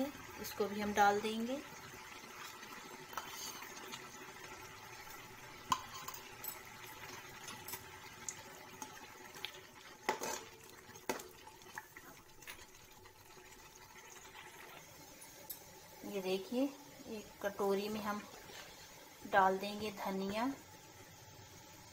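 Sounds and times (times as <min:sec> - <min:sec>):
faint sizzle of frying: 0:00.0 - 0:21.9
spatula scraping and knocking pan: 0:05.7 - 0:06.3, 0:10.0 - 0:10.5.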